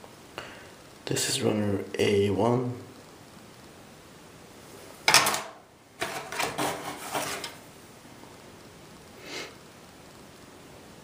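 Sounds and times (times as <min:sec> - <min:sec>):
plastic runners rustling and clattering: 0:05.1 - 0:07.6.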